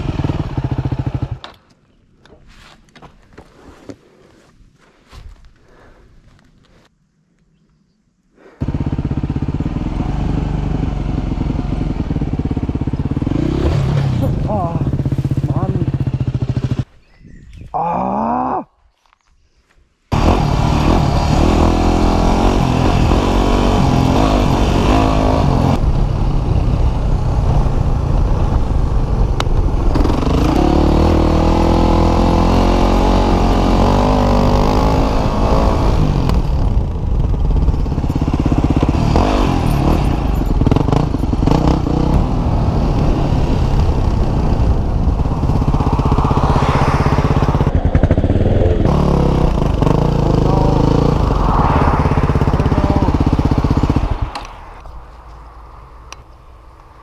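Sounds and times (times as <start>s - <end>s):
motorcycle engine revving: 0.0s - 1.4s, 8.6s - 17.0s, 20.1s - 54.9s
wind rushing over helmet: 42.2s - 48.8s, 50.8s - 55.2s.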